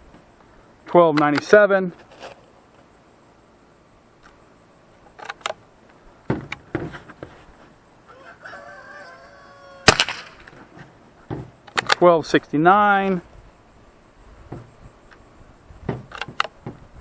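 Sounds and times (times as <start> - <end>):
rooster crowing: 8.0 - 10.3
sharp crack: 9.8 - 10.6, 11.6 - 12.2.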